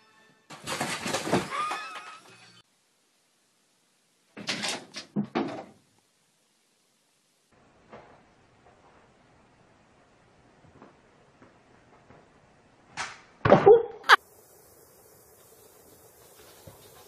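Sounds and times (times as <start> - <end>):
clatter and thuds: 0.5 - 2.1, 4.4 - 5.8.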